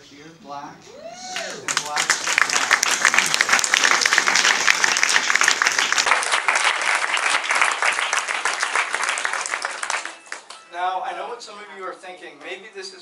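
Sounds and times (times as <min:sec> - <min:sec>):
audience applauding: 0:01.3 - 0:10.7.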